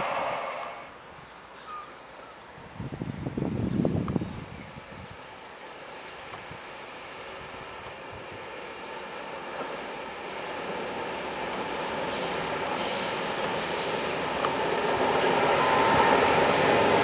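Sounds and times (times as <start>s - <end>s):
wheels squealing on rails: 0.0s - 1.0s, 5.7s - 17.0s
diesel locomotive engine: 0.0s - 17.0s.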